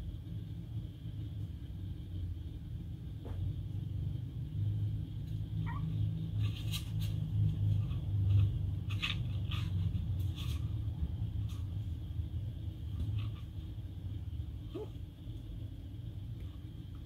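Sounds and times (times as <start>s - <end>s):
steady low rumble: 0.0s - 17.0s
kittens scuffling on plastic: 6.2s - 12.0s.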